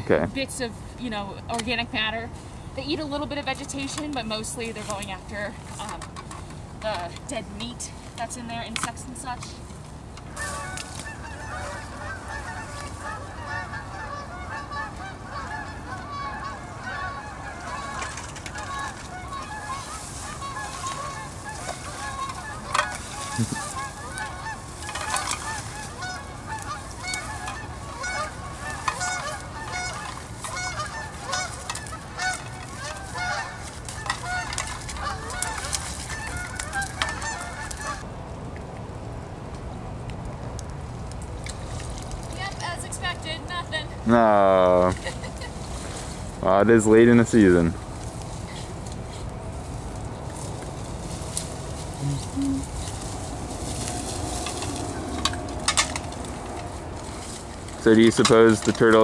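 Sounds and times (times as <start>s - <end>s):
geese honking: 10.3s - 38.1s, 41.9s - 59.0s.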